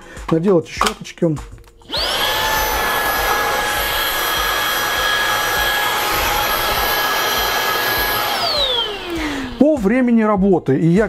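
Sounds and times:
vacuum cleaner motor whine: 1.8 - 9.8
vacuum motor spinning down: 1.8 - 10.1.

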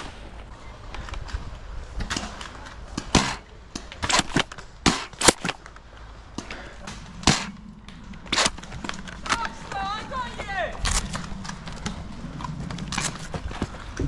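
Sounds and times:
foam-dart blasters popping: 4.0 - 5.6.

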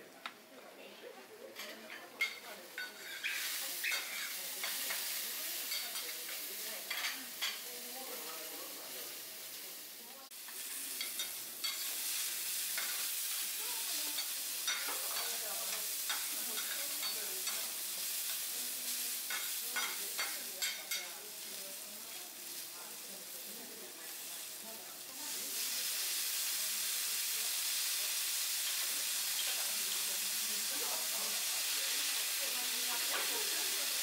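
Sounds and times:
food sizzling on griddle: 1.5 - 34.0
metal spatulas scraping hot plate: 1.6 - 6.1.

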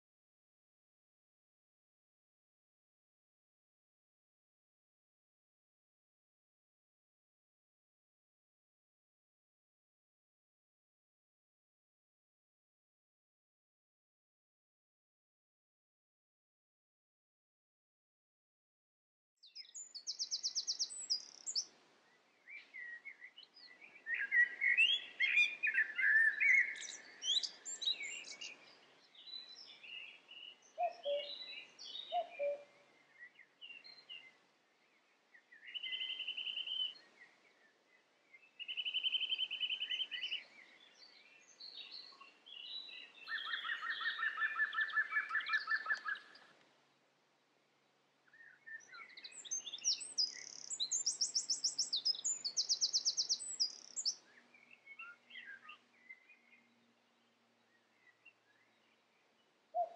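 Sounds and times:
birds singing: 19.4 - 46.6, 48.2 - 59.9.

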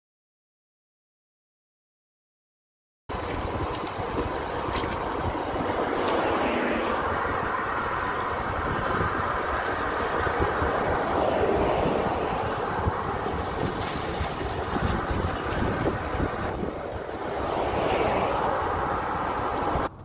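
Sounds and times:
cars passing: 3.1 - 20.0
road traffic noise: 3.1 - 20.0
wind rushing over microphone: 3.1 - 20.0.

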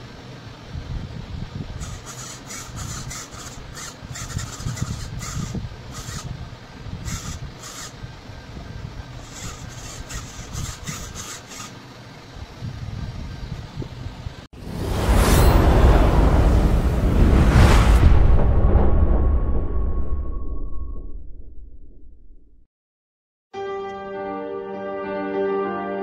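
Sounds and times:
servo buzzing in short bursts: 1.8 - 8.1, 9.1 - 11.9
low rumble: 14.5 - 22.7.

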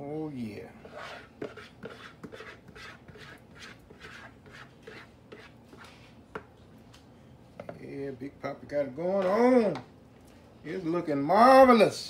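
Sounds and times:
spoon scraping and knocking a pot: 0.8 - 5.8.

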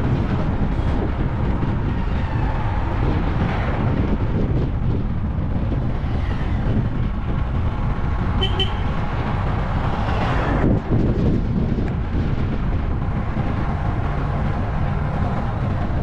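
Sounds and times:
road traffic rumble: 0.0 - 16.0
vehicle horn toots: 8.4 - 8.9.

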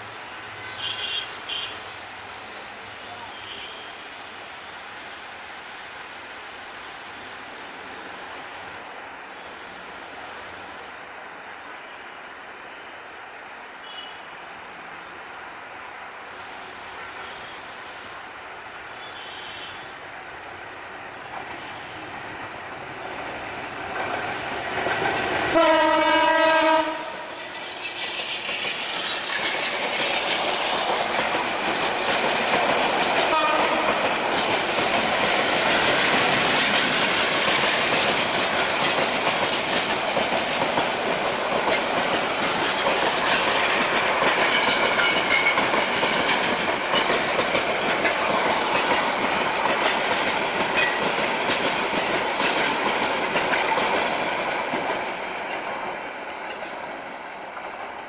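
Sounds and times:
train running noise: 0.0 - 58.0
wheels clacking over rail joints: 21.2 - 58.0
locomotive horn blast: 25.5 - 27.4, 33.3 - 34.0.

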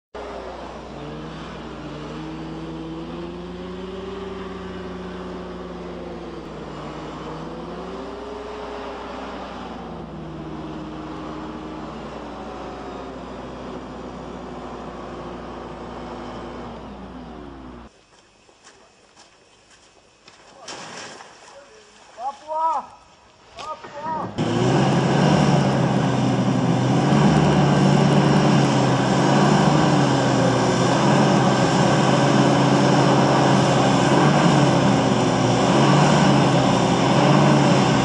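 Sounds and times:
hovercraft engine and fan: 0.2 - 18.9, 23.0 - 38.0.

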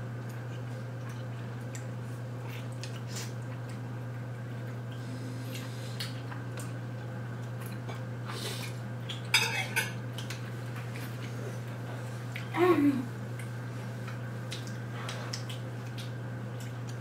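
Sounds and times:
steady low hum: 0.0 - 17.0
cutlery clatter: 9.4 - 10.0
forks scraping on plates: 9.4 - 10.0.

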